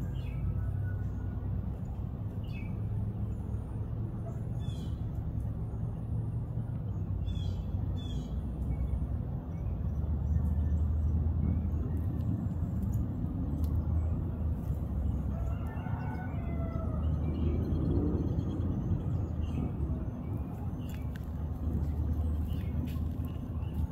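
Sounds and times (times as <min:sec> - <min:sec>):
rooster crowing: 0:15.2 - 0:17.4.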